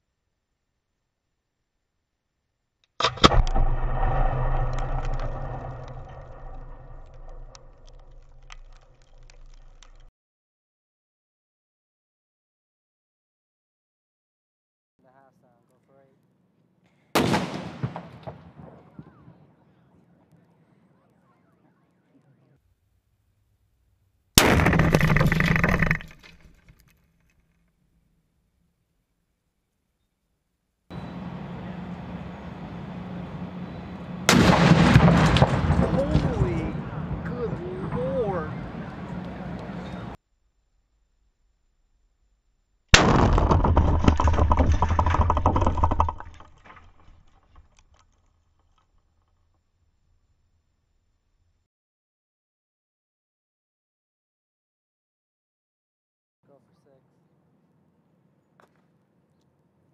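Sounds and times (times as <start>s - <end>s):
firework crackling and popping: 3.0s - 10.1s
fireworks exploding: 17.2s - 19.2s, 34.3s - 40.2s.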